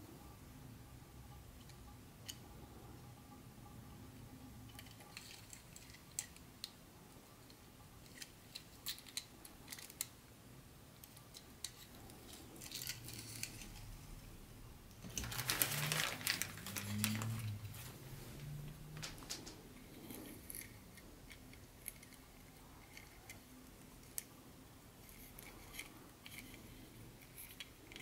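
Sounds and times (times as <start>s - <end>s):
rustling and clattering: 15.0s - 20.7s.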